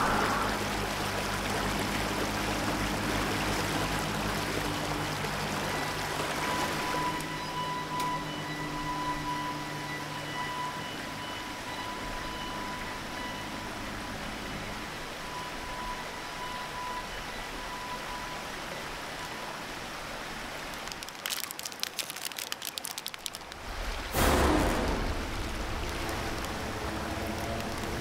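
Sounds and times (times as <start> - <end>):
stream running over rocks: 0.0 - 7.4, 13.8 - 28.0
plastic wrapper crackling: 20.6 - 23.7, 25.3 - 28.0.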